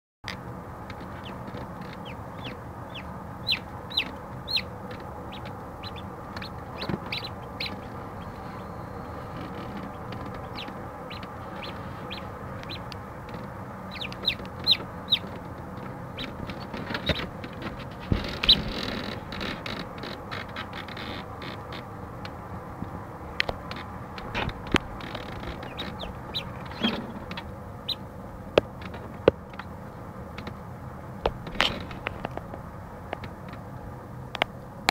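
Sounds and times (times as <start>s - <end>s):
incubator hum: 0.2s - 34.9s
chicks peeping: 0.9s - 21.9s, 23.6s - 28.1s.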